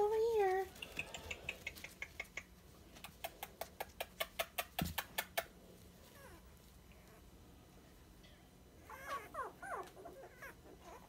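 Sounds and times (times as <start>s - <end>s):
puppies squeaking: 8.8s - 11.0s.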